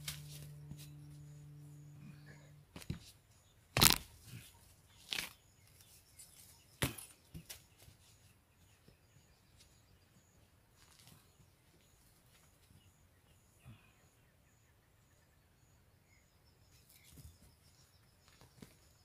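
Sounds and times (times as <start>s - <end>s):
knocks and cracks in dry soil: 3.7s - 8.0s.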